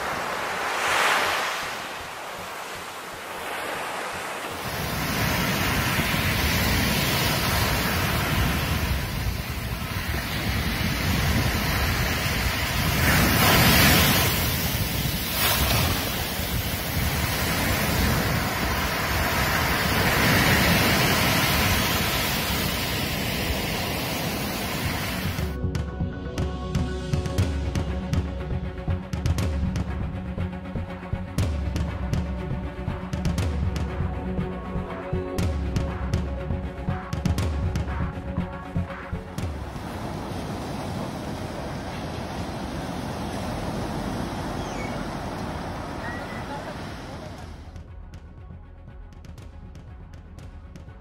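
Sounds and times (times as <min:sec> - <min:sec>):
ocean surf breaking on beach: 0:00.0 - 0:25.6, 0:39.4 - 0:47.8
wind rumbling on microphone: 0:00.0 - 0:25.6, 0:39.3 - 0:47.8.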